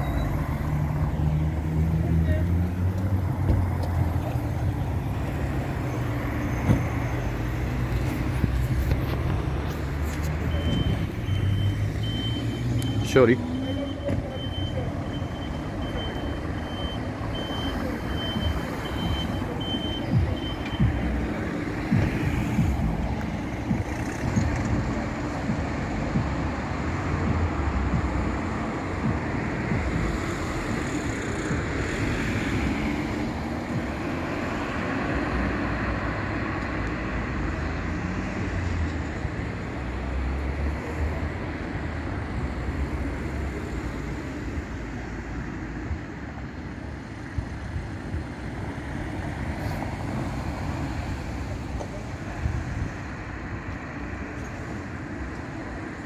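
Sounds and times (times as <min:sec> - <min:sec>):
reversing alarm beeps: 0:00.0 - 0:00.4, 0:10.5 - 0:21.2
engine and street noise: 0:00.0 - 0:56.0.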